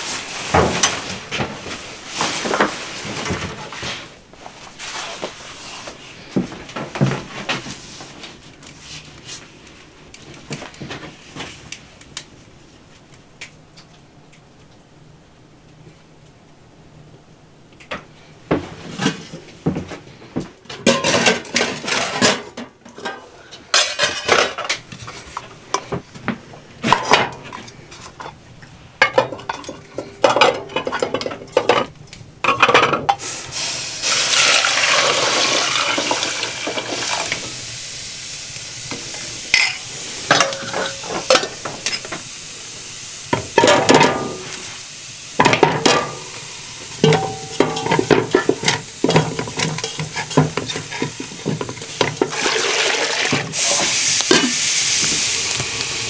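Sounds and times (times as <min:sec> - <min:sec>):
pots clanking: 0:00.0 - 0:04.1, 0:17.9 - 0:37.6, 0:38.9 - 0:42.4, 0:43.3 - 0:44.8, 0:45.4 - 0:55.8
steady rushing hiss: 0:00.0 - 0:06.7, 0:33.1 - 0:56.0.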